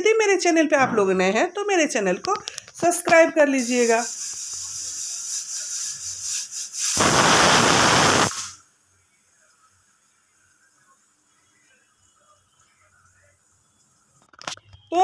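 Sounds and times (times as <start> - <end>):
pressure cooker whistling steam: 3.6 - 8.6.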